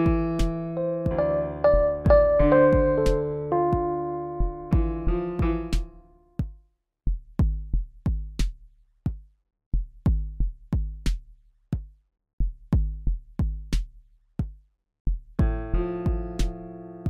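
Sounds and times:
drum machine beat: 0:00.0 - 0:16.6
keyboard chord: 0:00.7 - 0:05.8.

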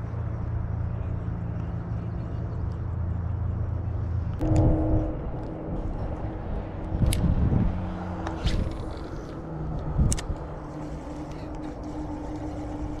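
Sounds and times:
tone with sharp clicks: 0:04.4 - 0:05.8.

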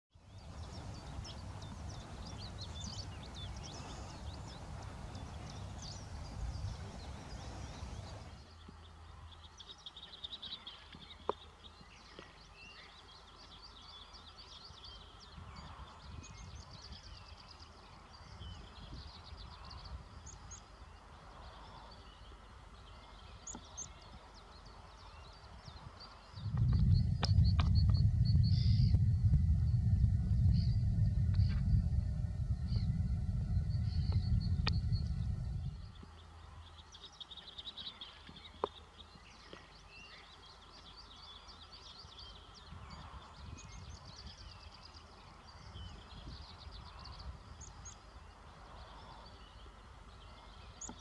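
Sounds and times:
birds chirping: 0:00.1 - 0:51.0
low rumble: 0:26.4 - 0:36.4.

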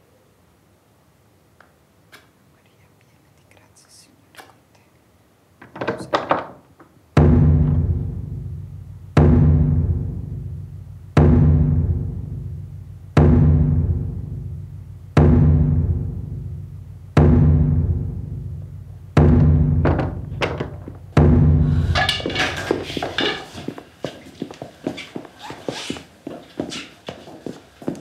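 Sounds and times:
deep drum hits: 0:07.2 - 0:23.3.

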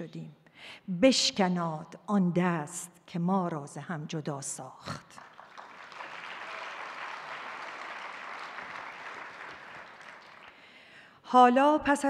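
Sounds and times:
audience applauding: 0:05.2 - 0:10.6.

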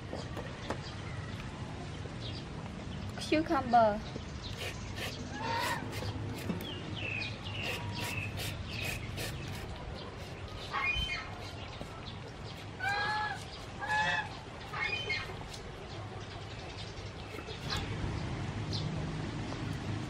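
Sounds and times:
peeler scraping cucumber: 0:04.5 - 0:06.8, 0:07.5 - 0:15.7
fowl calling: 0:05.3 - 0:06.1, 0:12.8 - 0:15.3.

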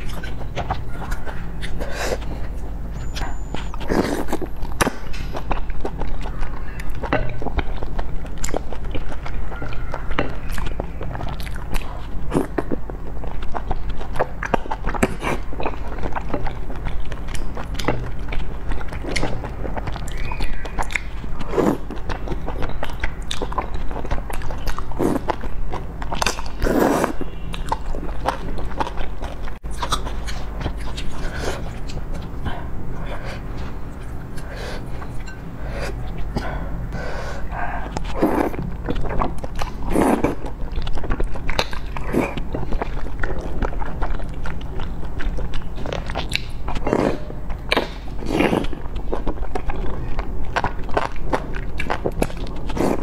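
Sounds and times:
wet chewing and lip smacks: 0:00.0 - 0:36.4, 0:37.4 - 0:53.0
slurping noodles: 0:03.8 - 0:04.5, 0:21.4 - 0:22.0, 0:24.7 - 0:25.4, 0:26.2 - 0:27.3, 0:37.0 - 0:38.6, 0:39.6 - 0:40.5, 0:46.8 - 0:48.8, 0:52.3 - 0:53.0.

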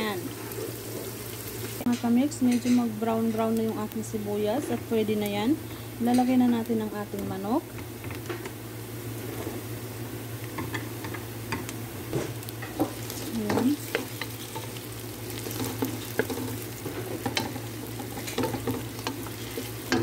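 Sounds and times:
chicken sizzling in hot oil: 0:00.0 - 0:20.0
wooden spoon scraping a pot: 0:12.7 - 0:20.0.

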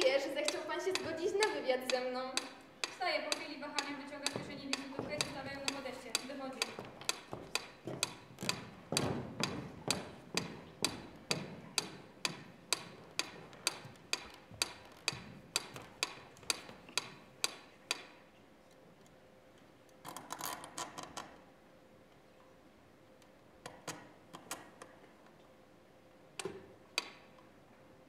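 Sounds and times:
footsteps on wooden floor: 0:04.3 - 0:05.9, 0:06.7 - 0:11.8.

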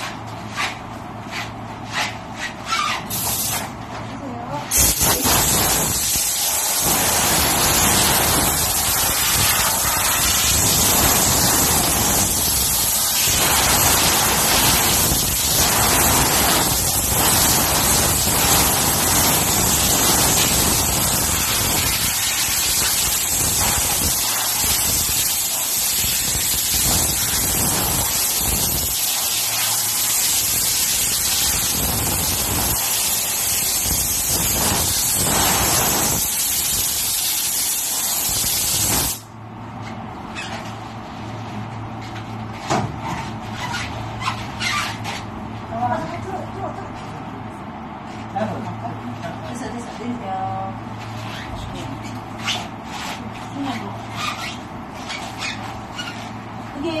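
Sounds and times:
compressed air blow gun hissing: 0:03.1 - 0:03.6, 0:04.7 - 0:39.3.

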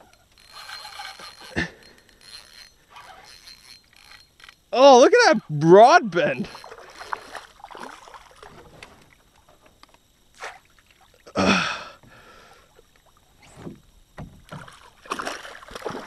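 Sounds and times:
water sounds: 0:00.0 - 0:16.0
person gasping: 0:11.4 - 0:12.7.

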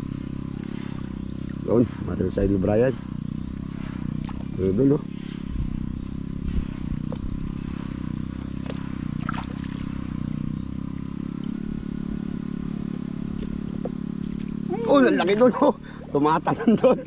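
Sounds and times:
small engine running: 0:00.0 - 0:17.0.

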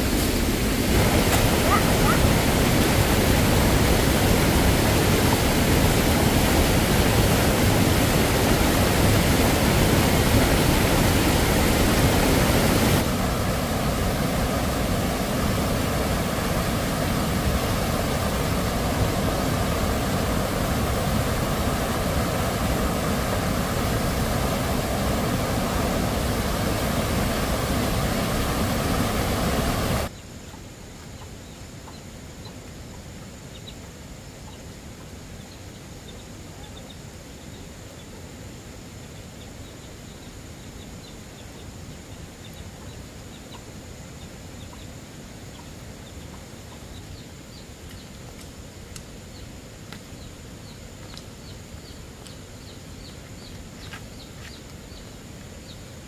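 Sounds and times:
loud steady rushing noise: 0:00.0 - 0:30.1
birds chirping: 0:00.9 - 0:06.2, 0:50.1 - 0:55.9.

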